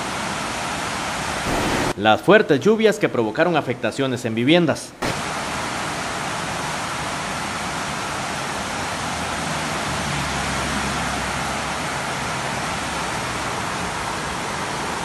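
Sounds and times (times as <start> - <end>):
rushing water hiss: 0.0 - 2.0, 5.0 - 15.0.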